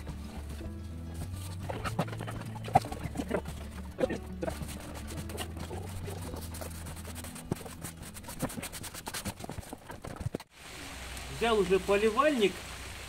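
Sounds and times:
broom sweeping stone paving: 0.2 - 10.5.

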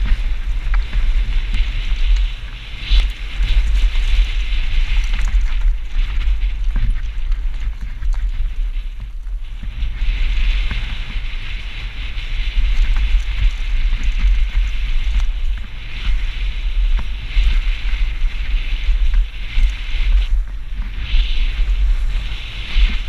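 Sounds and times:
tyres rolling over dirt and stones: 0.0 - 9.9
bike clicks and knocks: 0.0 - 10.0
wind rumble on microphone: 0.0 - 23.0.

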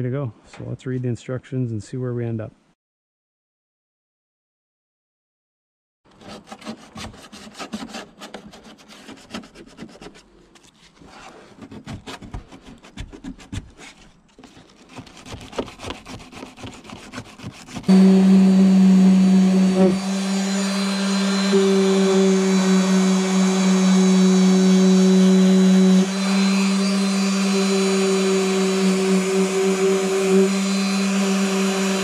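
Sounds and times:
sandpaper scraping: 6.2 - 32.0
orbital sander humming: 17.9 - 32.0.

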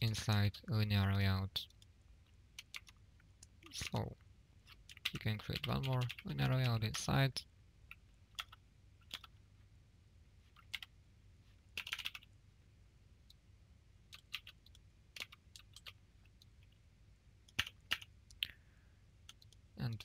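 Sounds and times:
keyboard and mouse clicks: 2.6 - 3.7, 4.6 - 6.8, 7.9 - 9.4, 11.7 - 12.3, 14.1 - 16.8, 17.4 - 18.5, 19.2 - 20.0.

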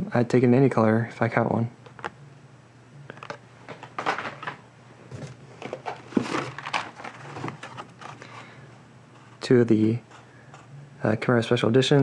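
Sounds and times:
plastic packaging clicks and crinkles: 5.6 - 8.3.

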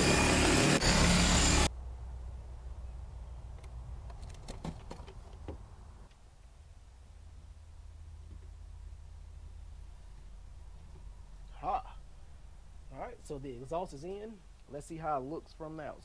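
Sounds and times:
power saw cutting through wall: 0.0 - 1.7.

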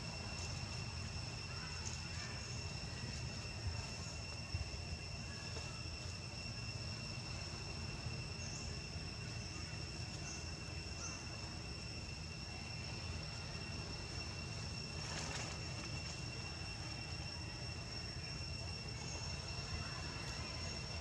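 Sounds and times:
high-pitched insect drone: 0.0 - 21.0.

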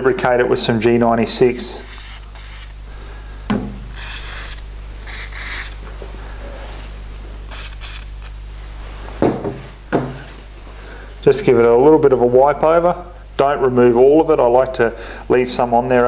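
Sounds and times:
aerosol spray hissing: 1.8 - 2.8, 3.9 - 5.8, 6.7 - 9.1
thump: 9.2 - 10.2.

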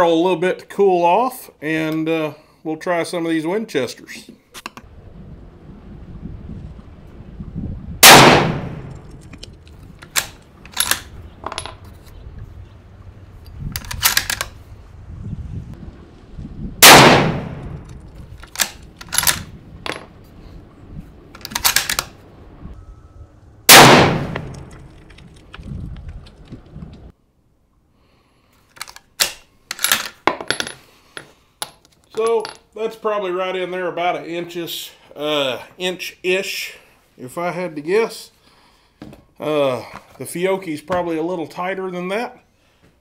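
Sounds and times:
rifle shots with ringing echo: 8.0 - 9.1, 16.8 - 17.8, 23.7 - 24.7
metallic clicks of rifle bolt: 8.9 - 11.6, 13.5 - 14.6, 17.7 - 19.5, 21.4 - 22.1, 28.6 - 30.2.

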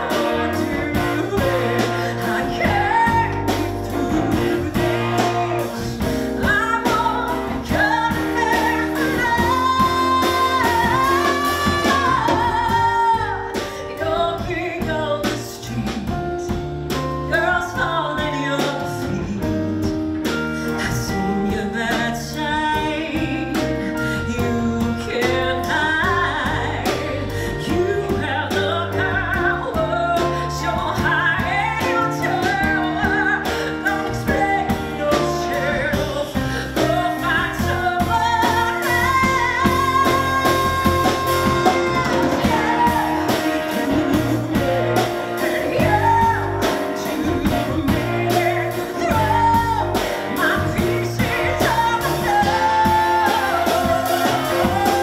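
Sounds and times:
band accompaniment: 0.0 - 55.0
woman singing: 0.0 - 55.0.

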